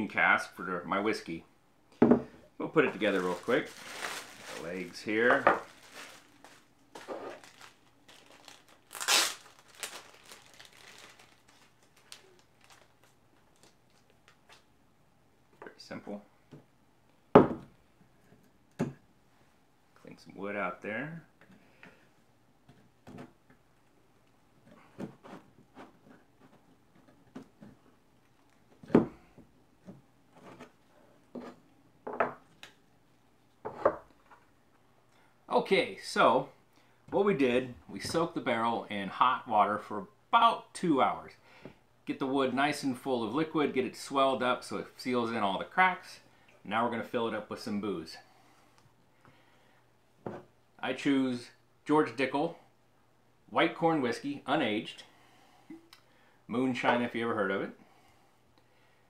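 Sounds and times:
plastic bag crinkling and tearing: 2.9 - 14.4.

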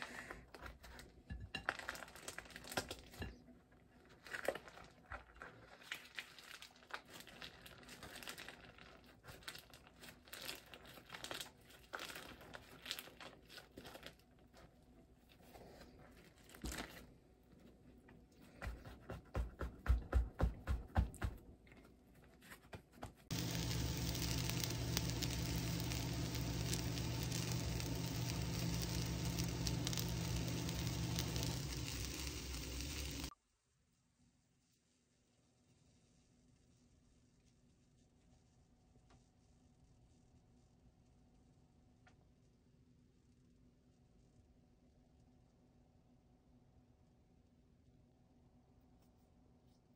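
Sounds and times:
food wrapping crinkling: 0.0 - 18.7, 21.8 - 33.3
food sizzling in a frying pan: 23.3 - 33.3
low hum: 23.3 - 33.3.

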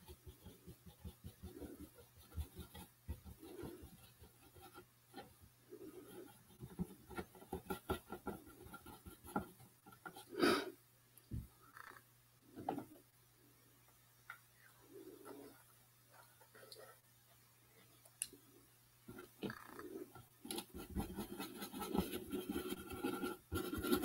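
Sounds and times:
paintbrush strokes and taps: 0.0 - 5.4, 6.0 - 10.3.

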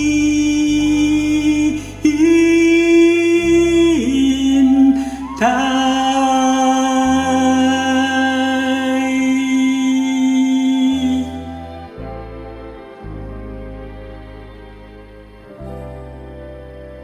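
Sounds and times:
man singing long notes: 0.0 - 12.6
karaoke backing track: 0.0 - 17.0.

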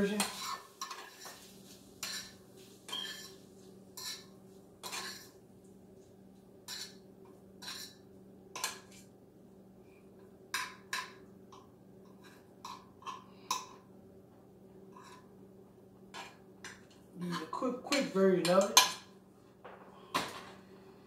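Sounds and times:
low steady hum: 0.0 - 21.0
fork scraping a frying pan: 0.1 - 5.4, 6.6 - 7.0, 7.6 - 8.0, 14.9 - 15.3.

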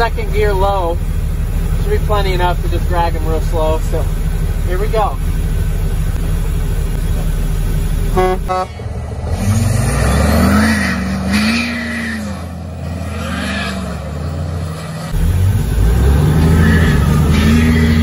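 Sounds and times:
diesel engine revving: 0.0 - 18.0
truck horn toots: 8.1 - 9.0, 10.3 - 12.5, 16.4 - 18.0.

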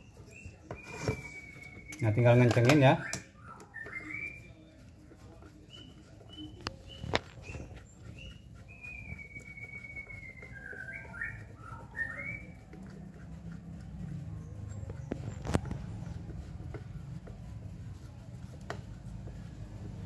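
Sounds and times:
whistled chirps and notes: 0.3 - 4.7, 6.3 - 12.6.

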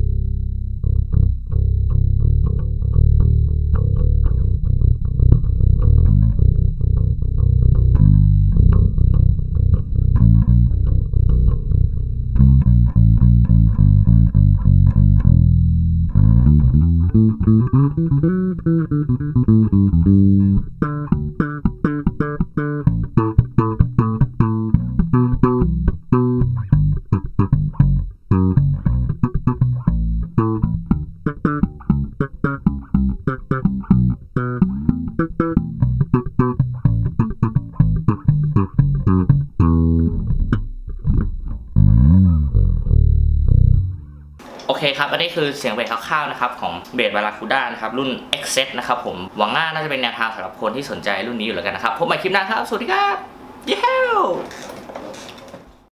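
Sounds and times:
electric bass played fingerstyle: 0.0 - 44.5.

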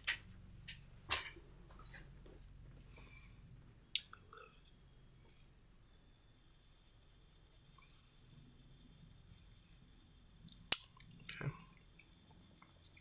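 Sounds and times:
pencil scratching on paper: 6.3 - 10.4, 12.1 - 13.0.

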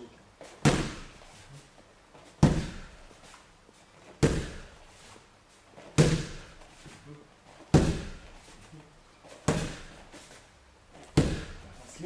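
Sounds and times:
knee strikes slapping pads: 0.6 - 1.3, 2.4 - 3.0, 4.2 - 4.8, 5.9 - 6.6, 7.7 - 8.5, 9.4 - 10.1, 11.0 - 11.8.

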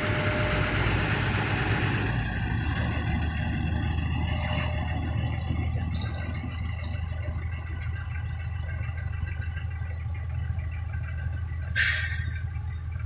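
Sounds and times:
diesel truck engine idling: 0.0 - 13.0
loud hiss: 11.8 - 13.0.

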